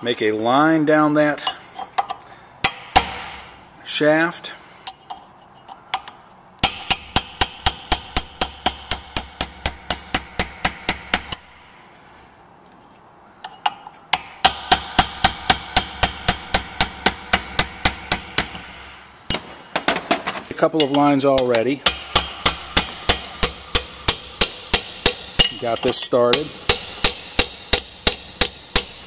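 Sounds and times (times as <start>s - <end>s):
hammer tapping chisel on metal: 4.9s - 11.5s, 13.4s - 29.0s.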